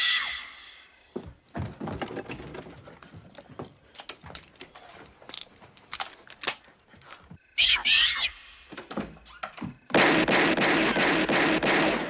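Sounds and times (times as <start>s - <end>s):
metallic clicks of gun loading: 3.9s - 7.2s
loud shrill screech: 7.6s - 8.5s.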